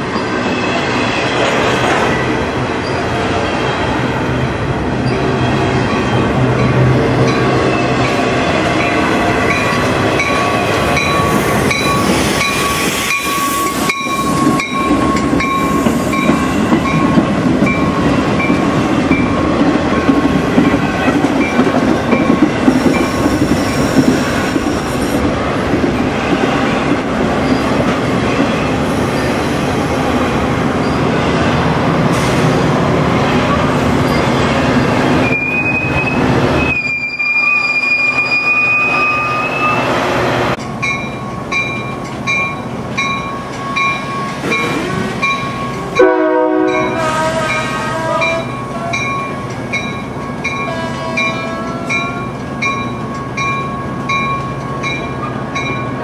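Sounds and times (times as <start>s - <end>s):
diesel locomotive passing: 0.0s - 56.0s
train wheels rumbling on rail: 0.0s - 56.0s
clickety-clack over rail joints: 8.8s - 29.3s, 40.5s - 46.0s.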